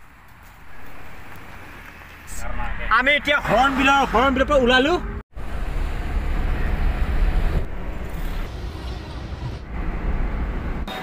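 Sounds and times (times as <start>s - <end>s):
tyre and engine rumble: 3.7s - 11.0s.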